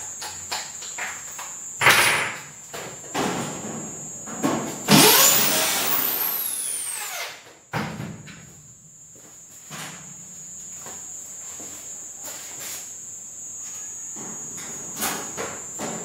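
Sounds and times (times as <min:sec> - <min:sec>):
electric drill motor: 0:04.9 - 0:07.5.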